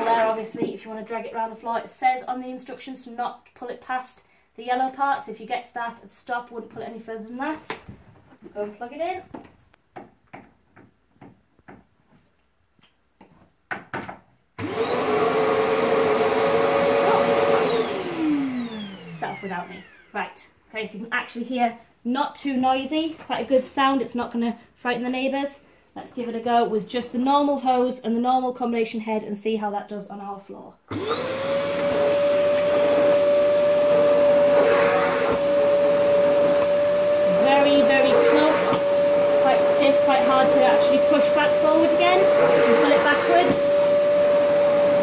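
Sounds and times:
vacuum cleaner motor whine: 0:14.6 - 0:20.3, 0:30.9 - 0:45.0.

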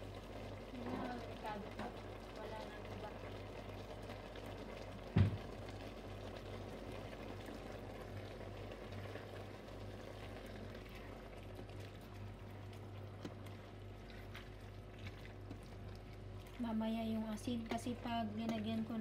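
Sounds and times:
squid simmering in a pot: 0:00.0 - 0:19.0
wooden spoon stirring: 0:10.2 - 0:18.8.

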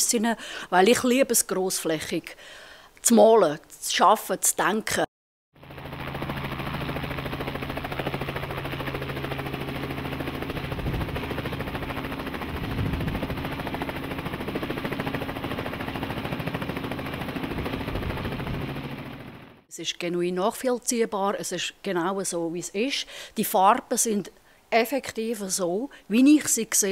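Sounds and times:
helicopter blade chop: 0:05.7 - 0:19.6.

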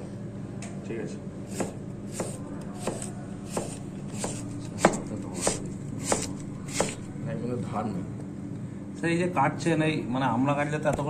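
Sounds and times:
knife slicing onto cutting board: 0:01.5 - 0:07.0.

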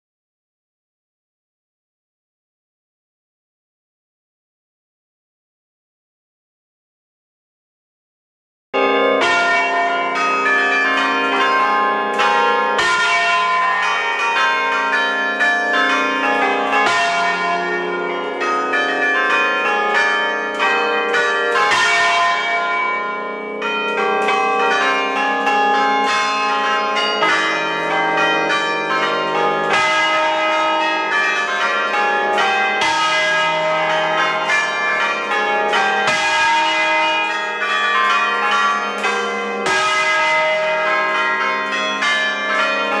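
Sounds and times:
church bells pealing: 0:08.8 - 0:43.0.

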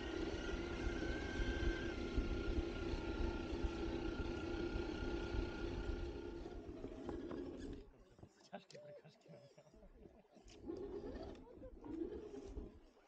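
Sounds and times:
electric motor whining: 0:00.0 - 0:07.9.

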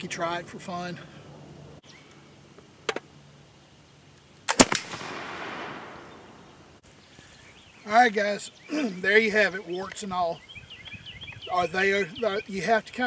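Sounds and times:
shotgun report with echo: 0:04.5 - 0:06.7.

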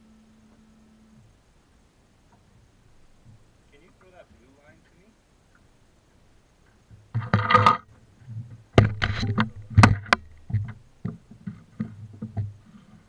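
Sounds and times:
knocks and thumps on boat deck: 0:06.9 - 0:12.6
life jacket rustling and buckle clicks: 0:08.8 - 0:12.6.

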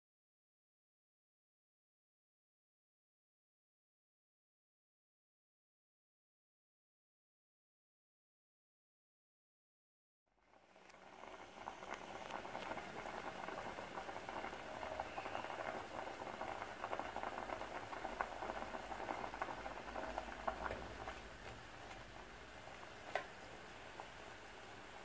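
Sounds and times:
soup boiling and bubbling: 0:10.4 - 0:25.0.

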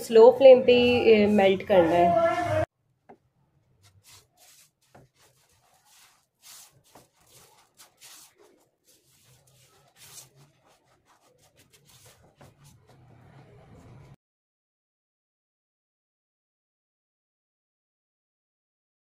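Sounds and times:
spatula scraping through sugar: 0:03.8 - 0:14.2.

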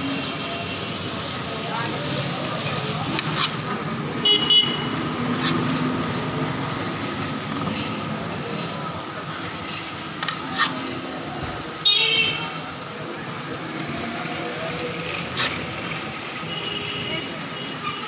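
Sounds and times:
street traffic noise: 0:00.0 - 0:18.0
vehicle horn toot: 0:04.2 - 0:04.9.

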